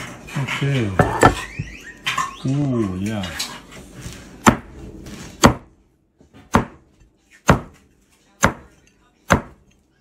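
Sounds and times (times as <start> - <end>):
knife chopping onto wooden board: 4.4 - 7.8, 8.4 - 9.6.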